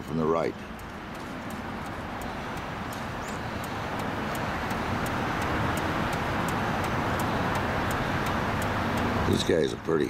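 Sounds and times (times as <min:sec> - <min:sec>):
traffic rush: 0:00.0 - 0:10.0.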